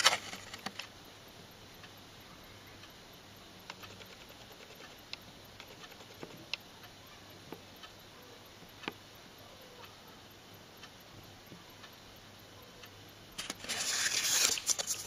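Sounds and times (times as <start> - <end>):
paper card handling clicks: 0.0 - 0.9, 13.4 - 15.0
low steady hum: 0.0 - 15.0.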